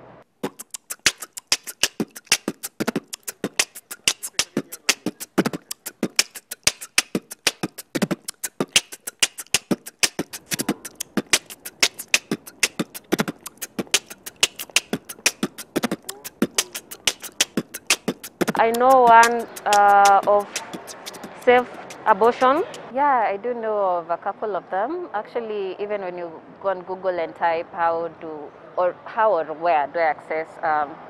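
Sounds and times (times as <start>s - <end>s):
fast clicking percussion beat: 0.4s - 22.9s.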